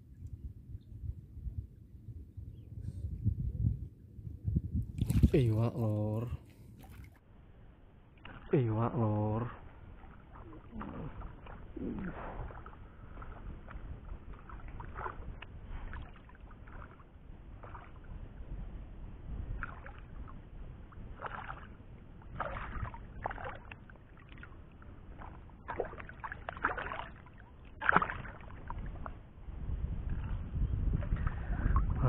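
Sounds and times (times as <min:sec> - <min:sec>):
fish splashing at water surface: 0:06.6 - 0:07.2, 0:08.1 - 0:08.7, 0:09.5 - 0:18.4, 0:19.4 - 0:29.2.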